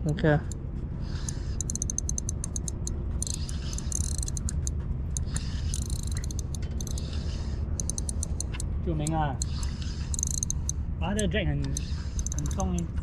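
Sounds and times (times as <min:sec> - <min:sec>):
low steady rumble: 0:00.0 - 0:13.0
fishing reel clicking: 0:01.1 - 0:12.9.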